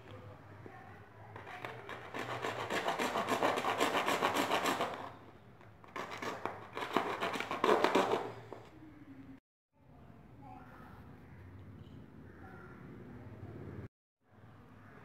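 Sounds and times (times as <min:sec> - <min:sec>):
blade sawing plastic pipe: 0:01.4 - 0:05.2, 0:05.9 - 0:08.7.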